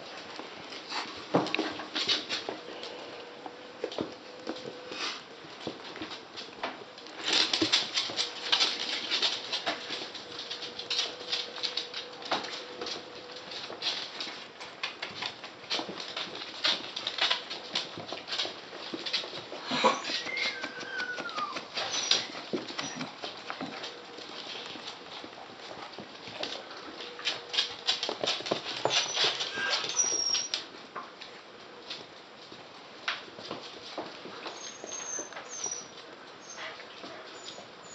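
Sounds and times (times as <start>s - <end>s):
dog claws clicking on wooden floor: 5.6s - 30.7s
high squeak: 34.6s - 36.6s.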